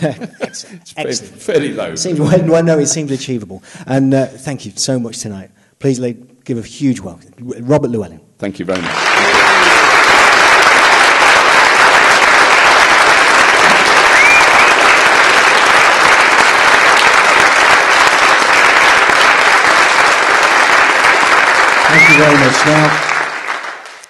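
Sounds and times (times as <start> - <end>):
audience applauding: 8.7 - 24.0
rising whistle-like tone: 14.1 - 14.8, 21.9 - 22.6.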